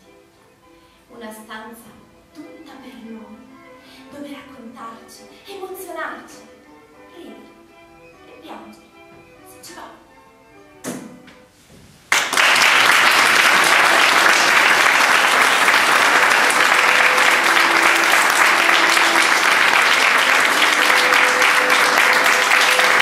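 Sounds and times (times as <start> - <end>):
audience applauding: 12.1 - 23.0.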